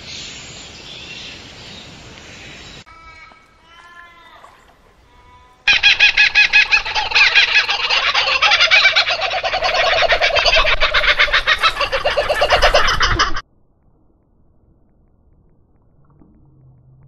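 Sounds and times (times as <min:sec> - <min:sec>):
kookaburra cackling: 0:05.7 - 0:13.4.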